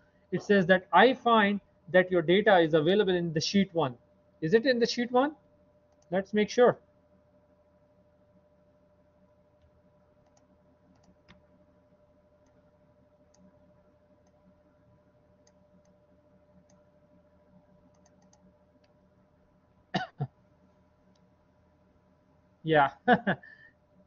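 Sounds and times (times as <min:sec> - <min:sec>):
low electrical hum: 0:00.0 - 0:24.0
computer mouse clicks: 0:05.9 - 0:06.1, 0:09.6 - 0:11.6, 0:12.4 - 0:12.6, 0:13.2 - 0:13.6, 0:14.2 - 0:14.5, 0:15.4 - 0:16.0, 0:16.6 - 0:16.9, 0:17.8 - 0:19.0.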